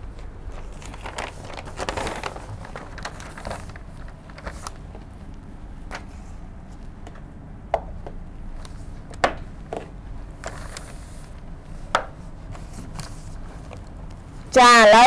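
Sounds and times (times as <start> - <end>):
paper rustling: 0.2 - 5.3, 10.4 - 14.4
hands tapping paper on whiteboard: 11.9 - 12.2.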